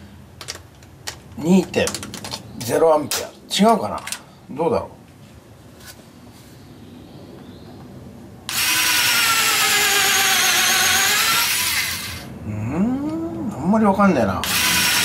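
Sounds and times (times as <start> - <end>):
drill motor whining: 8.5 - 12.3, 14.4 - 15.0.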